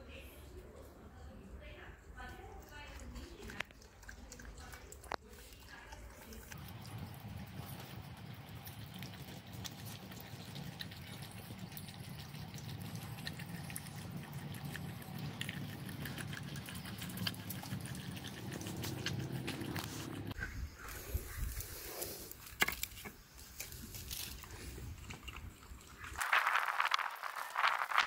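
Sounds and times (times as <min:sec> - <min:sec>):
dog lapping and smacking: 0:02.3 - 0:20.4.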